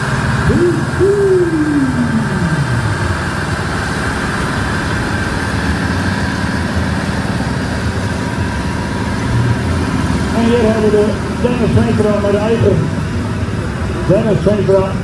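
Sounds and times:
diesel tractor engine under load: 0.0s - 15.0s
falling hoot: 0.4s - 3.0s.

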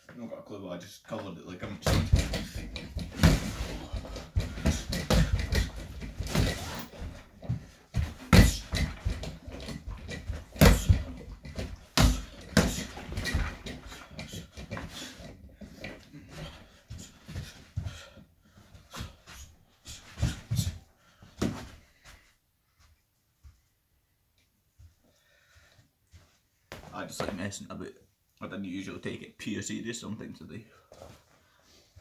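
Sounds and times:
punches thudding on punching ball: 1.8s - 6.9s, 7.9s - 13.7s.

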